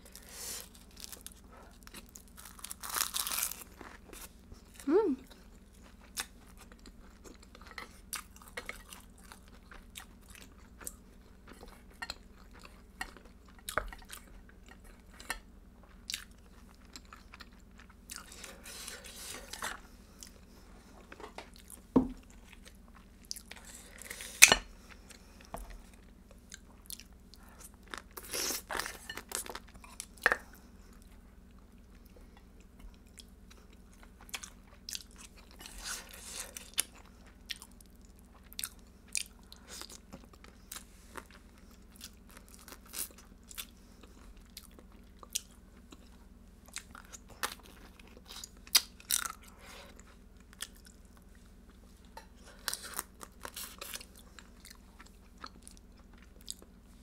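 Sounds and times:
wet chewing and crunching: 0:00.0 - 0:20.5, 0:32.9 - 0:56.8.

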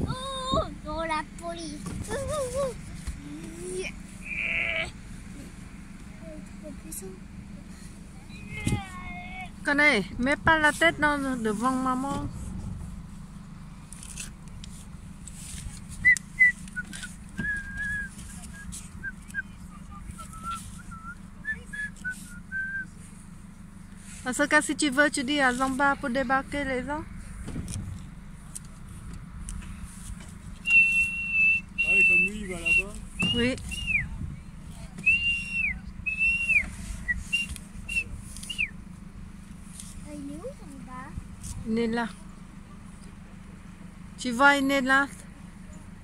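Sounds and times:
steady low rumble: 0:00.0 - 0:46.0
whistled notes: 0:16.0 - 0:23.0, 0:30.6 - 0:34.2, 0:35.0 - 0:38.8.

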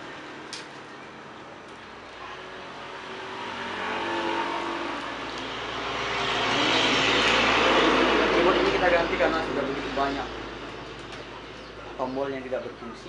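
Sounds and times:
vehicle engine approaching: 0:02.6 - 0:12.5.

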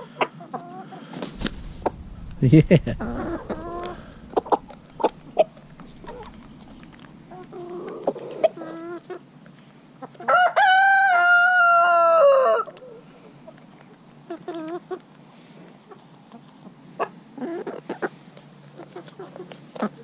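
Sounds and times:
rooster crowing: 0:10.3 - 0:12.6.

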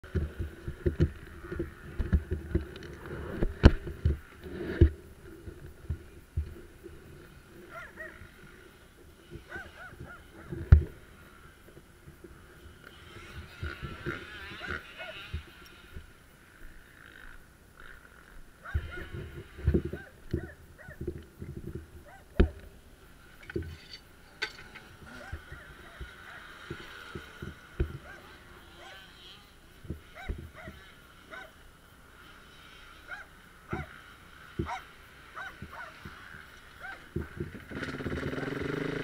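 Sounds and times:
muffled dirt bike engine: 0:00.0 - 0:39.0
thumps and knocks of bike: 0:00.1 - 0:05.0, 0:23.4 - 0:28.2, 0:33.7 - 0:34.8, 0:37.0 - 0:38.4.

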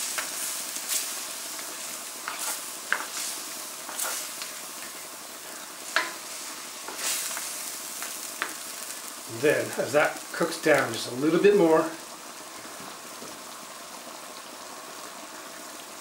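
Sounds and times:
spatula stirring and scraping: 0:00.0 - 0:08.6
curry sizzling in a wok: 0:00.0 - 0:16.0.

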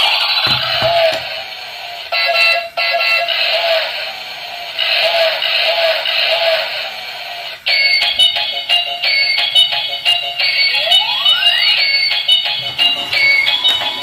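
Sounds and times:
tinny electronic toy tune: 0:07.7 - 0:14.0
rising and falling tones: 0:10.5 - 0:14.0.

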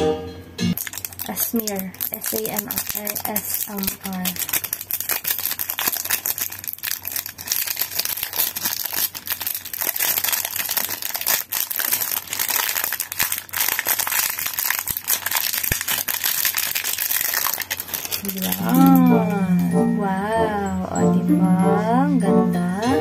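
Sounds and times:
plastic wrapping crinkling: 0:00.7 - 0:19.4.

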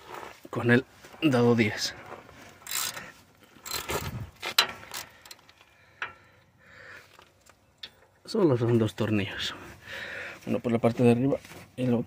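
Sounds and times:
socket ratchet clicking: 0:02.6 - 0:03.0, 0:03.6 - 0:04.2.

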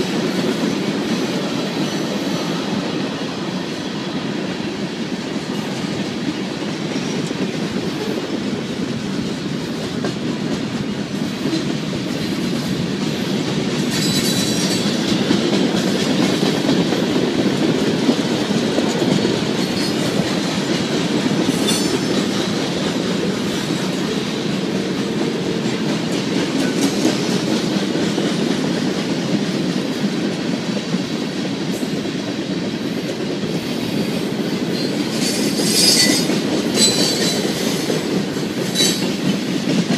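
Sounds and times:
freight train rolling past: 0:00.0 - 0:39.9
high-pitched wheel squeals: 0:34.8 - 0:37.4.

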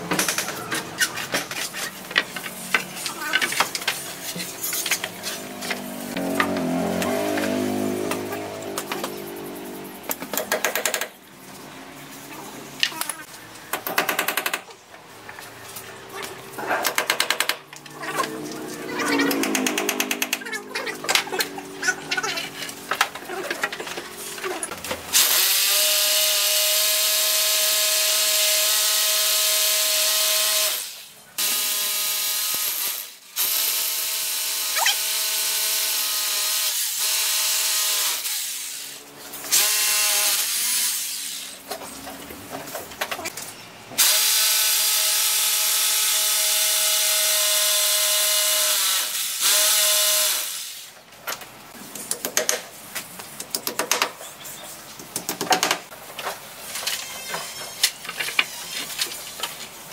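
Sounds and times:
sharp clicks and taps: 0:19.3 - 0:21.5
electric drill drilling wood: 0:25.2 - 0:41.6, 0:44.0 - 0:50.9.

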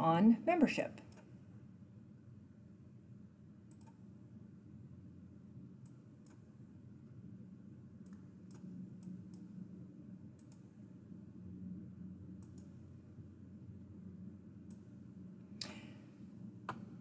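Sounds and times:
low steady hum: 0:00.0 - 0:17.0
computer mouse clicks: 0:01.0 - 0:01.3, 0:03.7 - 0:04.0, 0:05.8 - 0:06.5, 0:08.0 - 0:09.5, 0:10.4 - 0:10.7, 0:12.4 - 0:12.8.

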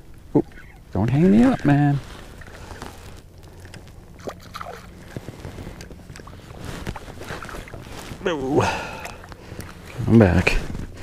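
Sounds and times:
water sloshing and lapping: 0:00.4 - 0:11.0
small splashes: 0:02.1 - 0:10.8.

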